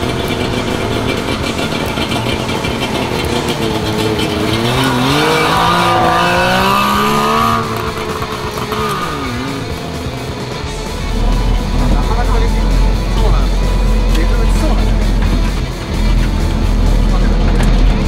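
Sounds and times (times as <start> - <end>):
two-stroke car engine revving: 0.0 - 18.0.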